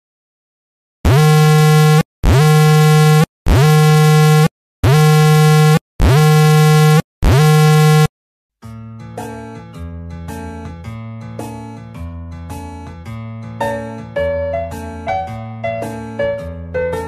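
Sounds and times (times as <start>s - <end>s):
electronic buzzer: 1.0s - 8.1s.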